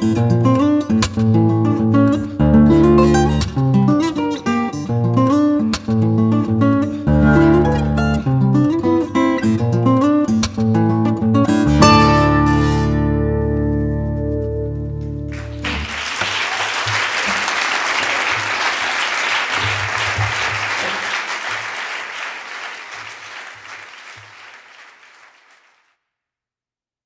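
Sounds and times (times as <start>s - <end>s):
acoustic guitar chord ringing: 10.9s - 15.6s
audience applause: 15.3s - 25.9s.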